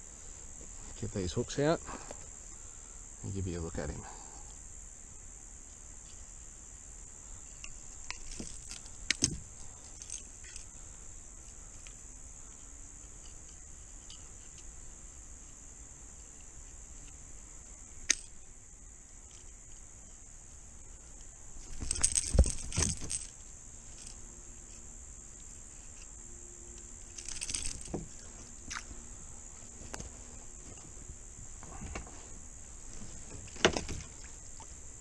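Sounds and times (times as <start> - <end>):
insects chirring: 0.0 - 35.0
pliers and hooks clinking: 21.6 - 24.2, 26.7 - 28.2.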